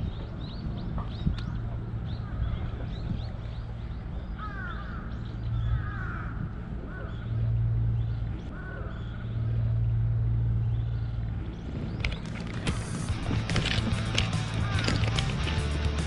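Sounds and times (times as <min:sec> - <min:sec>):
low steady hum: 0:00.0 - 0:16.0
crows cawing: 0:04.4 - 0:07.4, 0:08.5 - 0:09.2, 0:14.1 - 0:15.7.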